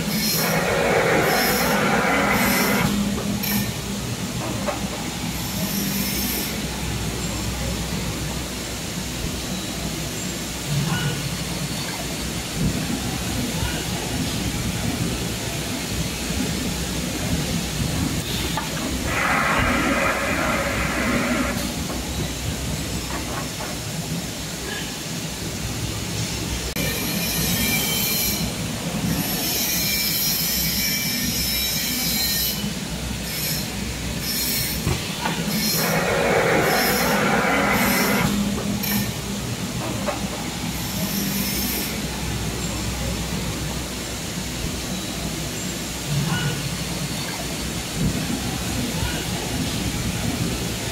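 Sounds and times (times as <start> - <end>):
extrusion machine hum: 0.0 - 3.4
loud rush of noise: 0.0 - 5.4, 12.2 - 26.9, 34.8 - 40.8.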